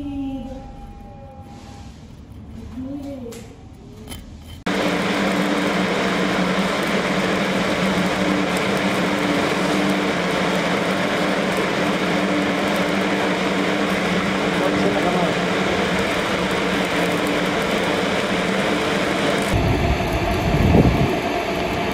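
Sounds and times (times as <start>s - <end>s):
low hum: 0.0s - 14.7s, 15.5s - 21.9s
welding arc crackling: 4.6s - 21.9s.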